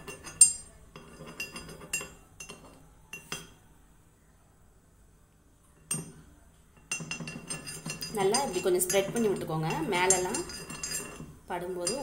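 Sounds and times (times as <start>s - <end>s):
spoon clinking against pan: 6.9s - 12.0s.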